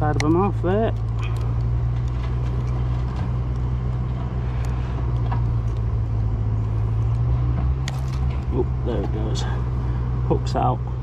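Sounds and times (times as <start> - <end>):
low rumble: 0.0 - 11.0.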